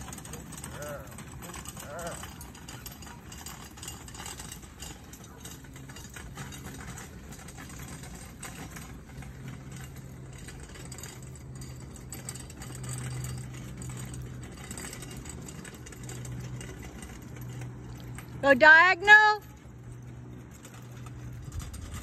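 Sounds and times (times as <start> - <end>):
engine idling: 0.0 - 22.0.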